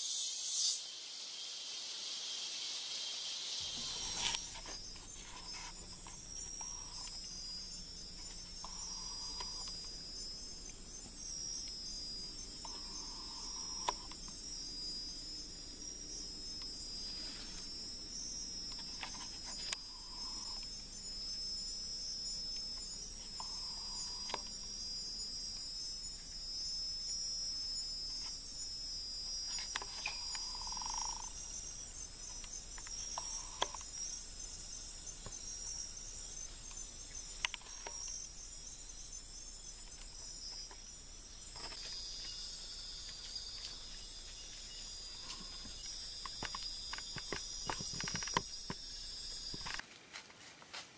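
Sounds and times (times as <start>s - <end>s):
crickets trilling: 0.0s - 50.3s
sharp clicks: 36.6s - 38.2s.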